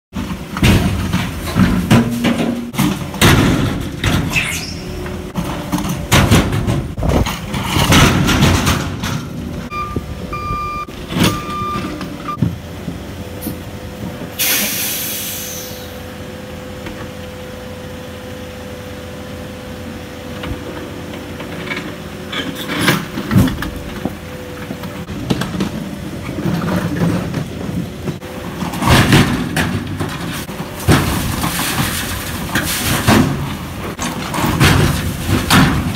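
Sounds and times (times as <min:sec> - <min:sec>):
diesel engines running: 0:00.2 - 0:35.9
debris crashing into steel truck bed: 0:00.5 - 0:04.4, 0:05.3 - 0:09.5, 0:28.4 - 0:35.9
short beeps: 0:09.7 - 0:12.4
air hiss: 0:14.4 - 0:16.0.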